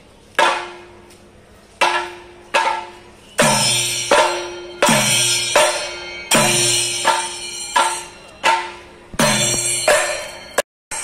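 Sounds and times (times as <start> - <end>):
hand cymbals ringing: 1.9 - 11.0
drums playing slow beat: 3.4 - 11.0.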